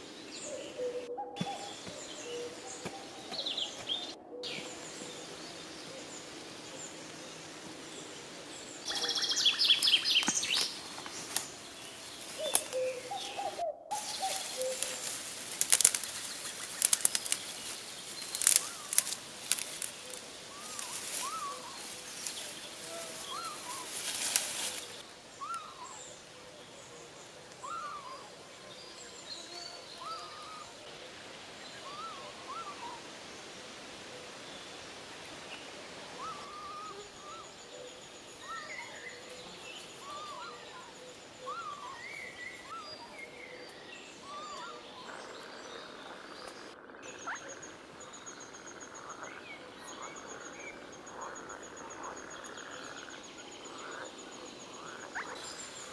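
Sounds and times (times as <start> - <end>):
dry brushwood crackling and rustling: 8.8 - 25.8.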